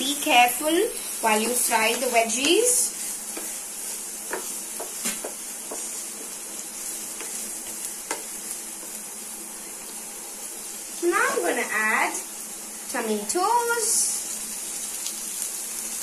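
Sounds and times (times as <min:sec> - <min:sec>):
vegetables sizzling in oil: 0:00.0 - 0:16.0
spatula tapping and scraping pan: 0:01.0 - 0:09.0.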